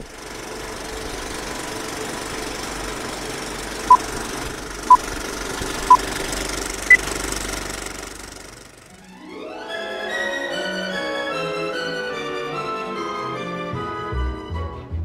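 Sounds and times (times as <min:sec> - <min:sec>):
film projector running: 0:00.0 - 0:08.9.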